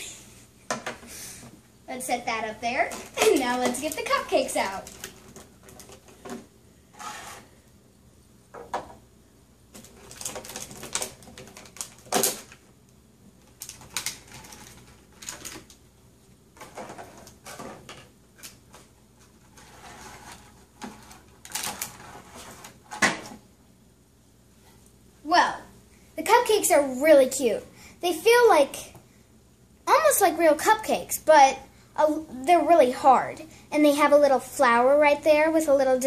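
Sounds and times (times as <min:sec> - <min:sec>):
plastic toys set on wooden table: 0:02.9 - 0:07.5
plastic packaging crackling: 0:03.0 - 0:06.1, 0:09.7 - 0:12.7, 0:13.4 - 0:15.8, 0:20.1 - 0:22.8.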